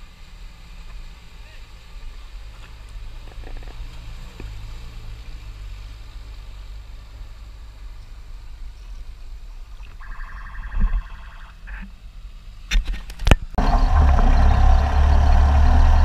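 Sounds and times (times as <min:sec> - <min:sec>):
car engine running: 0:13.6 - 0:16.0.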